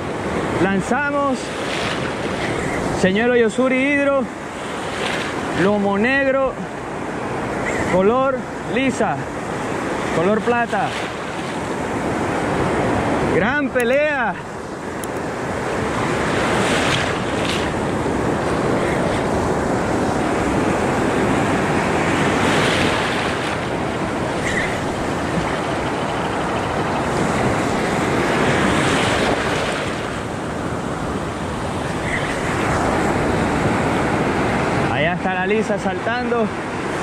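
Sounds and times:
ocean surf washing in: 0:00.0 - 0:37.0
wind buffeting microphone: 0:14.4 - 0:35.0.

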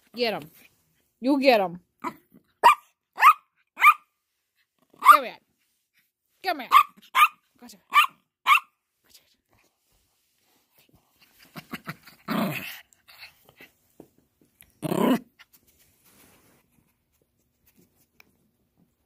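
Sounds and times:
small dog growling barks: 0:11.6 - 0:12.8, 0:14.8 - 0:15.4
dogs scuffling and snuffling: 0:15.4 - 0:18.9.

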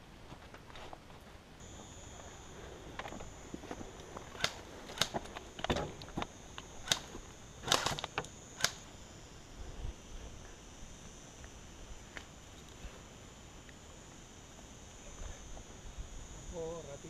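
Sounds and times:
steady high-pitched hum: 0:00.0 - 0:17.0
clicks and knocks of rifle handling: 0:04.1 - 0:08.8.

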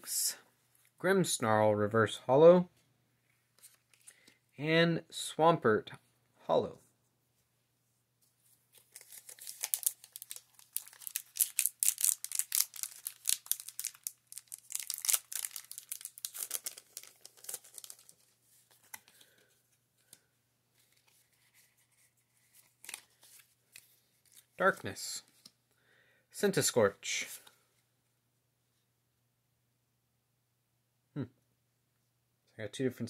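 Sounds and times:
foil wrapper crinkling and tearing: 0:08.8 - 0:19.4, 0:22.6 - 0:24.4.

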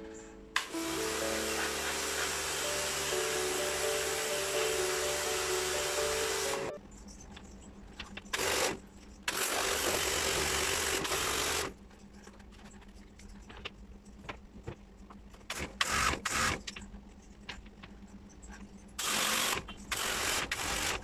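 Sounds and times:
pressure washer spraying water: 0:00.6 - 0:06.8.

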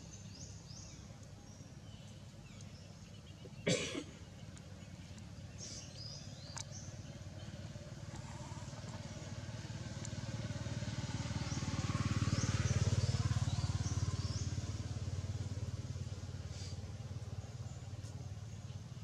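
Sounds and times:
vehicle engine passing by: 0:05.6 - 0:19.0.

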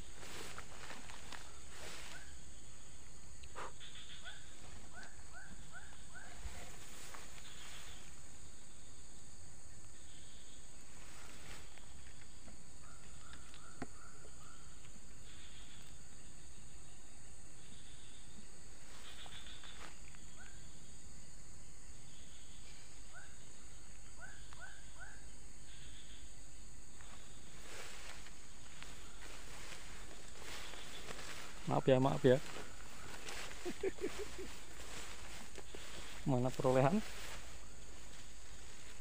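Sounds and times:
rustles of brush: 0:00.0 - 0:03.1, 0:03.8 - 0:08.3, 0:10.8 - 0:12.4, 0:18.8 - 0:20.2, 0:27.0 - 0:39.0
high-pitched insect drone: 0:00.0 - 0:39.0
bird chirping: 0:26.9 - 0:37.8.

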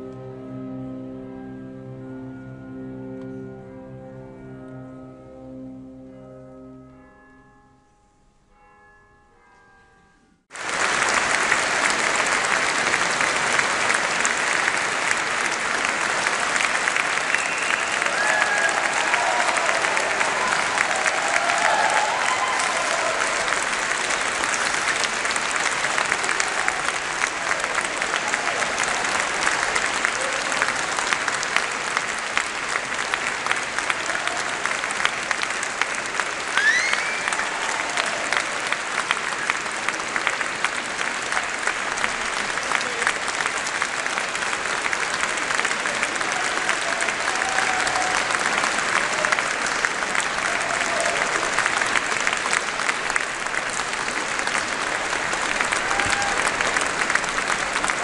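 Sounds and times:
audience applauding: 0:10.5 - 0:58.0
rising whistle: 0:36.5 - 0:37.8.

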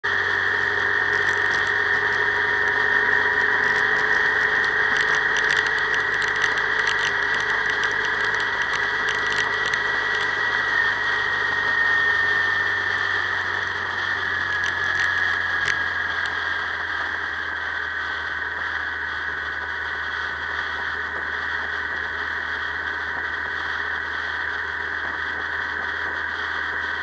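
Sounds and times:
vehicle wind and road noise: 0:00.0 - 0:17.0
high-pitched whine: 0:00.0 - 0:27.0.

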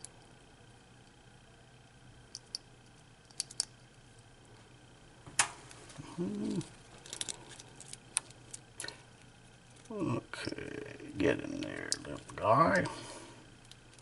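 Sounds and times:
person grunting: 0:06.0 - 0:06.7.

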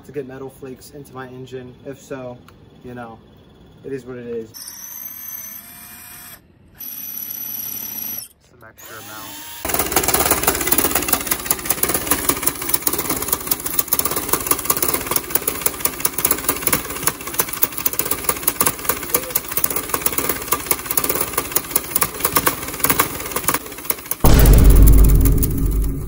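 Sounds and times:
go-kart engine pulsing through trumpet: 0:09.6 - 0:24.3.

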